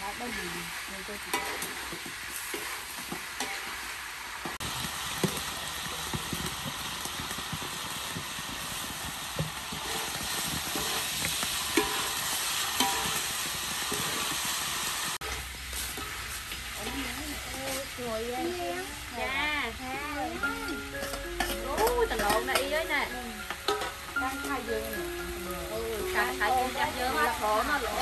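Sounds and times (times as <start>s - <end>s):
food sizzling in a wok: 0.0s - 28.0s
metal ladle scraping and clinking: 10.7s - 12.2s, 21.0s - 22.6s.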